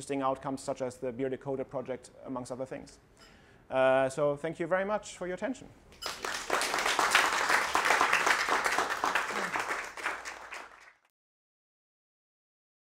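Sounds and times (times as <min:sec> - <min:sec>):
audience applauding: 0:06.1 - 0:11.1.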